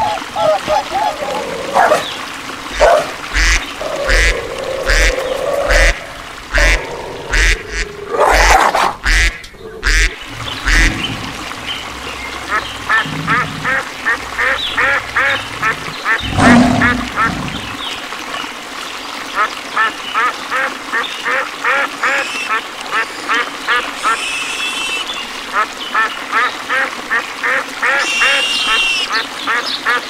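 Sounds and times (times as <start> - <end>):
animal calls: 2.7 - 17.8
ducks quacking: 2.7 - 17.8, 19.8 - 30.0.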